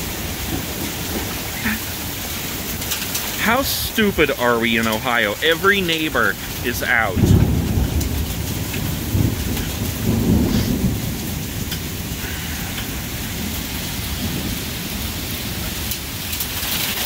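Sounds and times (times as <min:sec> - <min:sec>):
hailstones ticking: 0:00.0 - 0:17.0
heavy rain pouring: 0:00.0 - 0:17.0
thunder rumbling: 0:00.0 - 0:17.0.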